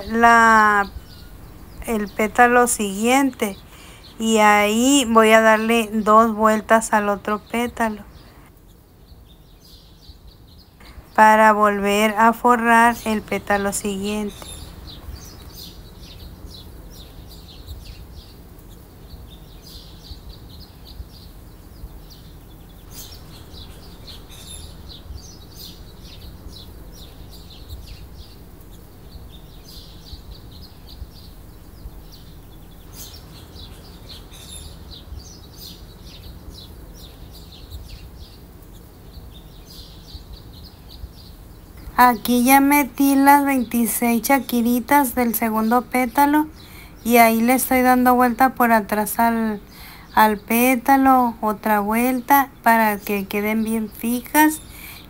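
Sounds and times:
small birds chirping: 0.0 - 55.0
steady low hum: 0.0 - 55.0.

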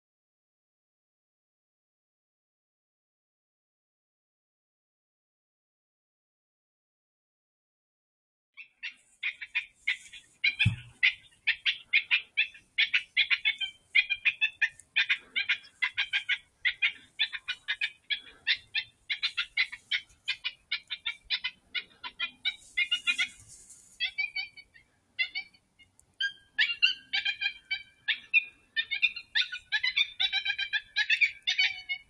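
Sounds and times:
high-pitched yips and squeals: 8.6 - 12.2, 12.8 - 25.6
low thump: 10.6 - 11.0.

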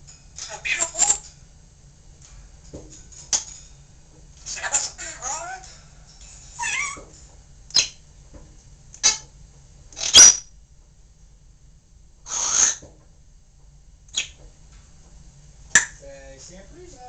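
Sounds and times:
parrot rasping call: 4.5 - 5.7, 6.5 - 7.1, 12.3 - 12.8
parrot squawks and clicks: 6.6 - 7.0.

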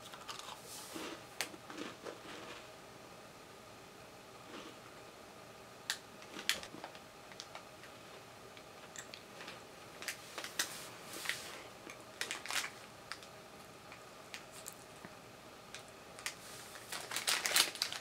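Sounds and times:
person chewing crunchy cookie: 0.0 - 2.6.

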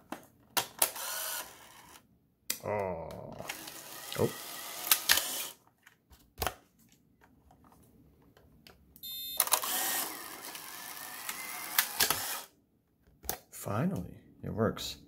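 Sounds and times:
camera film ejection motor: 3.4 - 5.6, 9.4 - 12.5
camera shutter firing: 4.6 - 5.6, 9.4 - 10.7, 11.3 - 12.5.

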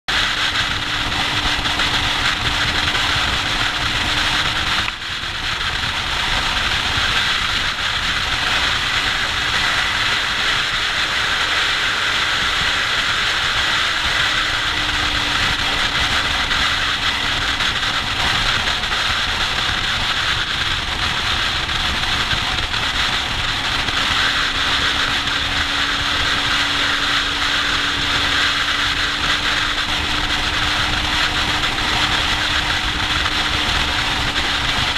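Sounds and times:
motorcycle engine: 0.1 - 34.9
wind rush: 0.1 - 34.9.

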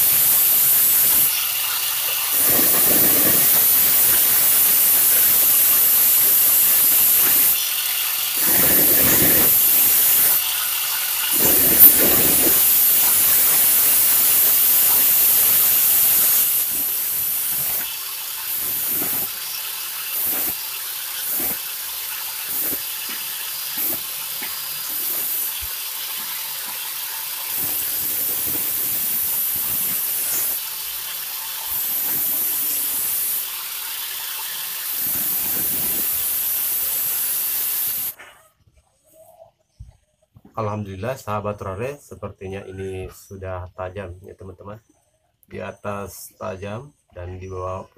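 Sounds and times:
angle grinder grinding steel: 0.0 - 38.2.

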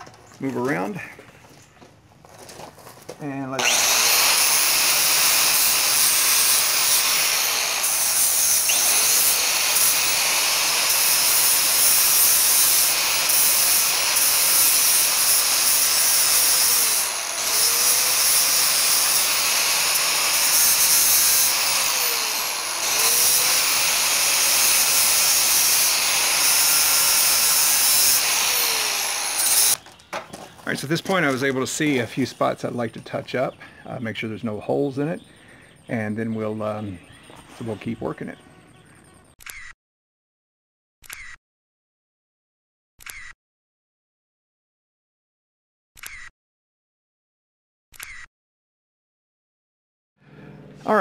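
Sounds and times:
angle grinder grinding metal: 3.4 - 33.3.

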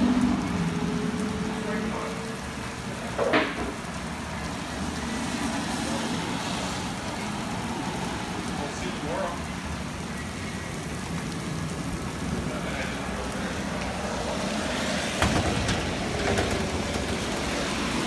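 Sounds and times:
heavy rain on pavement: 0.0 - 18.0
sharp knocks: 15.2 - 17.1.

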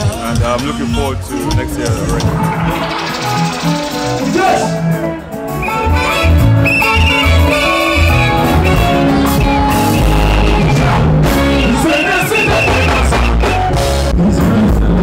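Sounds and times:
loud live music: 0.0 - 15.0
person singing: 9.9 - 15.0.

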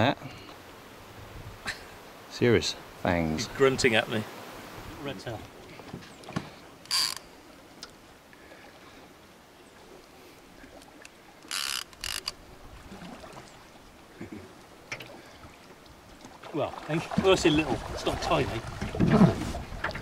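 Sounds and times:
fishing reel drag buzzing: 6.9 - 7.4, 11.4 - 12.4.

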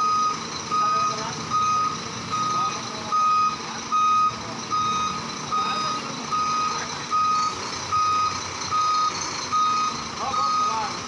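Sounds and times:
truck reversing alarm beeping: 0.0 - 11.0.

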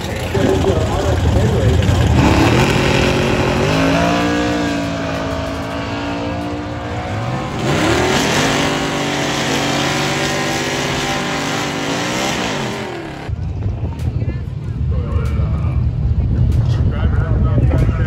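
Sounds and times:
racing car engines accelerating: 0.0 - 13.3.

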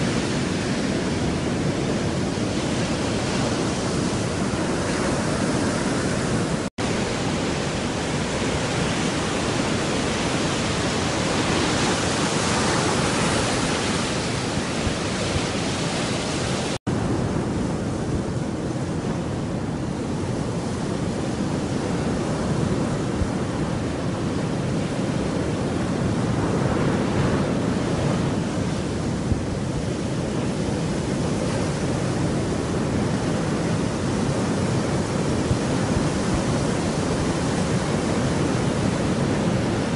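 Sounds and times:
surf washing on beach: 0.0 - 39.9.

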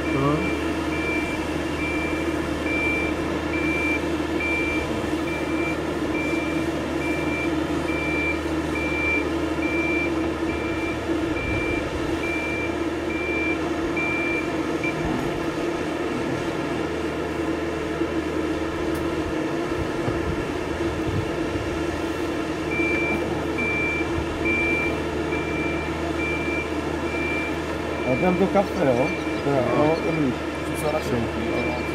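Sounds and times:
high-pitched warning beeper: 0.0 - 15.0, 22.7 - 31.9
travel lift engine running: 0.0 - 31.9.

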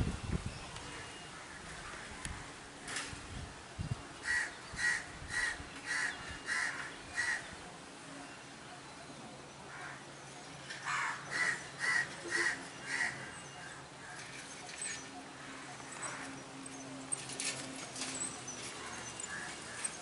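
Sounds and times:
bird calling: 4.2 - 20.0.

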